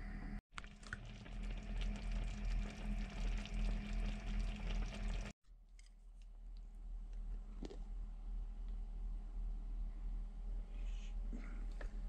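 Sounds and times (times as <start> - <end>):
low steady hum: 0.0 - 12.0
hot pot bubbling and crackling: 0.5 - 5.4.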